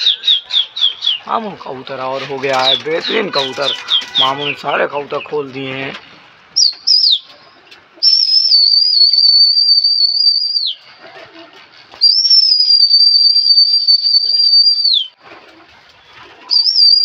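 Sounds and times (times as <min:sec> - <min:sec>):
long shrill whistles: 0:08.0 - 0:10.8, 0:12.0 - 0:15.2, 0:16.5 - 0:17.0.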